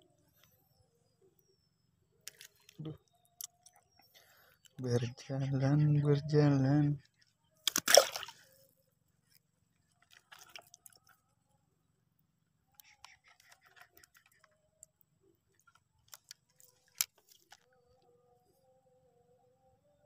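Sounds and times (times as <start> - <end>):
faint steady tone: 0.0 - 20.0
fishing gear clicks and rustles: 2.2 - 4.8, 9.2 - 11.2, 12.8 - 14.6, 15.5 - 17.7.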